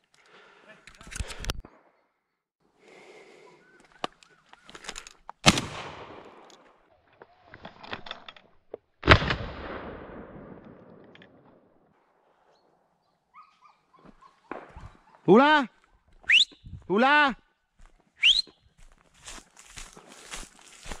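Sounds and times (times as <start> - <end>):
long echo of gunshots: 5.4 - 6.4, 9.0 - 11.0
shotgun shots: 5.4 - 6.5.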